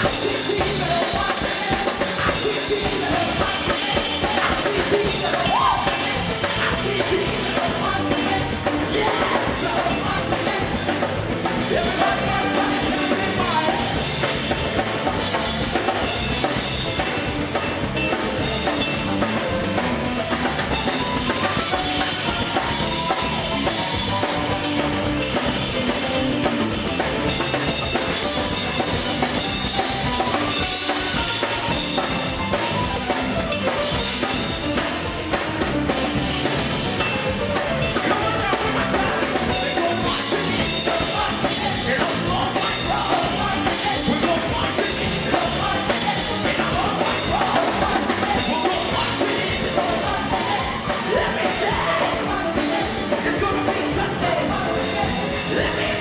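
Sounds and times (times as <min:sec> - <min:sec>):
voices singing: 0:00.0 - 0:17.2, 0:37.8 - 0:56.0
drum kit beat: 0:00.0 - 0:56.0
gospel band music: 0:00.0 - 0:56.0.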